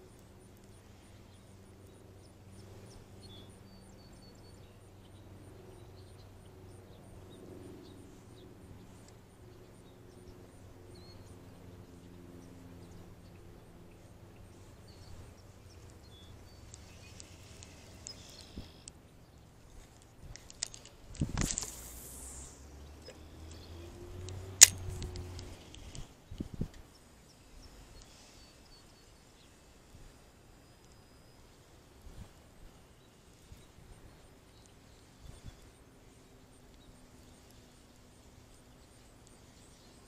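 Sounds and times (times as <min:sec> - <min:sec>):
low steady hum: 0:00.0 - 0:40.0
small high chirps: 0:14.0 - 0:26.4
clicks and rustles: 0:16.6 - 0:19.0, 0:19.8 - 0:22.0, 0:23.0 - 0:26.9.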